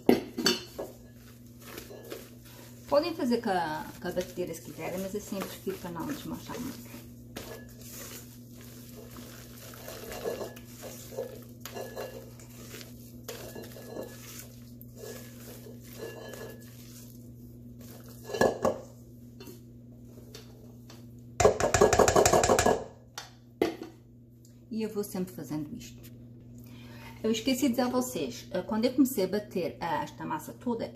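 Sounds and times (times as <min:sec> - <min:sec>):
spatula scraping metal bowl: 0:00.6 - 0:18.8
spatula clattering against bowl: 0:04.1 - 0:17.1, 0:21.4 - 0:22.8.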